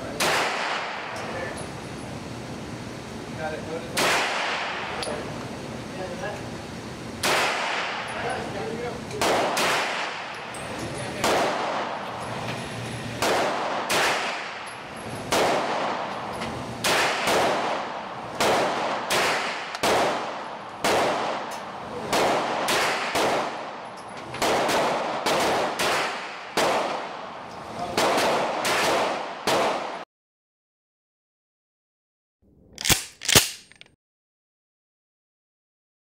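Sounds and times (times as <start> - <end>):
pistol shots echoing indoors: 0.2 - 1.2, 4.0 - 4.8, 7.2 - 8.1, 9.2 - 10.6, 11.2 - 12.1, 13.2 - 14.7, 15.3 - 16.2, 16.8 - 27.3, 27.9 - 30.0.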